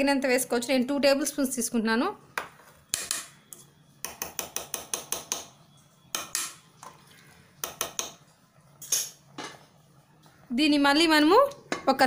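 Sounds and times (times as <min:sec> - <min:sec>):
spoon tapping metal pot: 0:02.4 - 0:07.0, 0:07.6 - 0:09.6.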